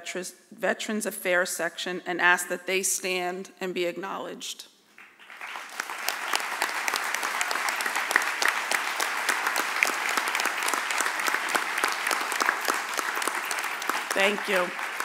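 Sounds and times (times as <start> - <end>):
audience applauding: 5.0 - 15.0.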